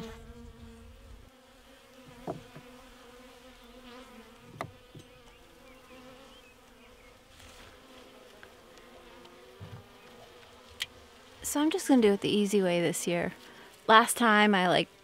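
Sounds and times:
honey bees buzzing: 0:00.0 - 0:15.0
knocks of wooden hive frames: 0:02.0 - 0:02.9, 0:04.2 - 0:05.4, 0:09.2 - 0:11.0.

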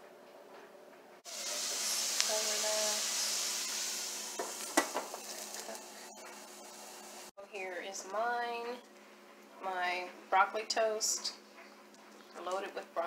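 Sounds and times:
vegetables sizzling in a frying pan: 0:01.2 - 0:07.3
knocks on pan: 0:04.4 - 0:05.2.

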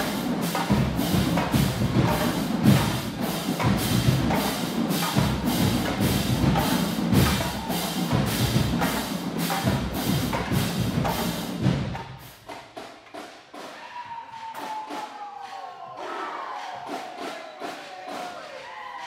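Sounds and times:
marching band playing: 0:00.0 - 0:13.7.

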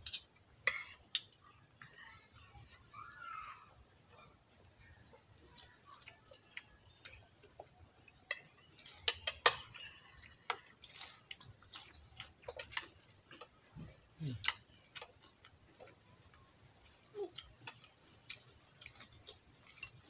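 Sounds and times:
metal spoons clinking on plate: 0:08.3 - 0:10.1.

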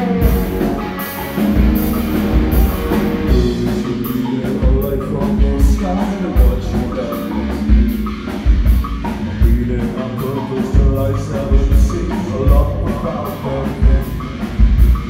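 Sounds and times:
rock band playing live: 0:00.0 - 0:15.0
man singing into a microphone: 0:03.3 - 0:07.8, 0:09.3 - 0:14.3.

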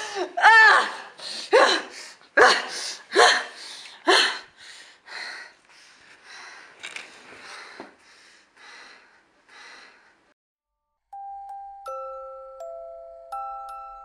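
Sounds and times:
woman gasping: 0:00.0 - 0:06.7, 0:07.4 - 0:10.4
breathy panting: 0:01.2 - 0:10.4.

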